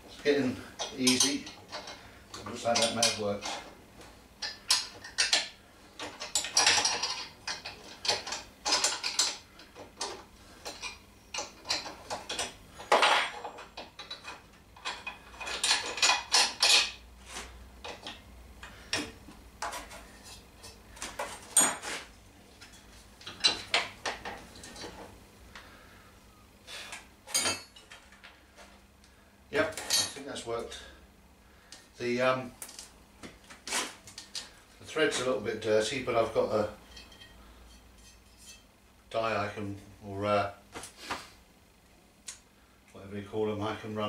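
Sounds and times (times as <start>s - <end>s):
metal tools clinking and scraping: 0.7s - 3.7s, 4.4s - 25.0s, 27.3s - 28.3s, 29.6s - 30.9s, 36.4s - 38.7s.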